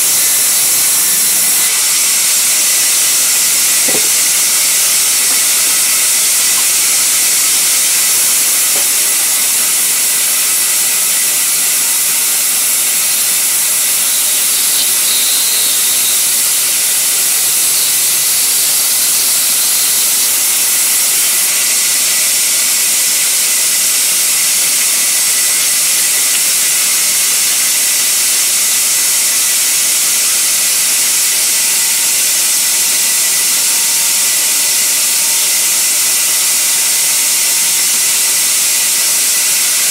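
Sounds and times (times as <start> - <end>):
band saw cutting timber: 0.0 - 26.9.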